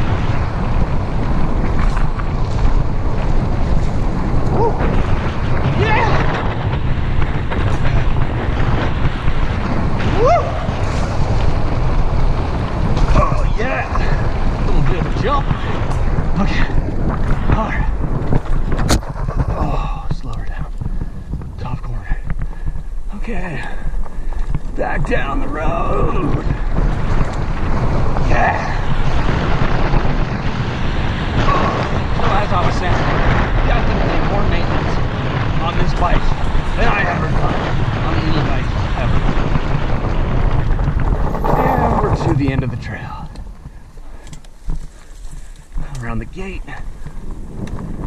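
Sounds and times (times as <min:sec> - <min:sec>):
bike rattling over rough ground: 0:00.0 - 0:48.0
tyres rumbling over dirt: 0:00.0 - 0:48.0
wind buffeting microphone: 0:00.0 - 0:48.0
rising whoop-like tone: 0:10.0 - 0:10.9.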